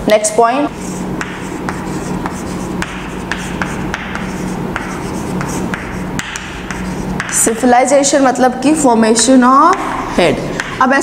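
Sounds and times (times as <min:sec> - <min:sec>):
steady low hum: 0:00.0 - 0:11.0
chalk scratching on chalkboard: 0:00.6 - 0:08.2
chalk taps: 0:00.7 - 0:08.3, 0:10.5 - 0:11.0.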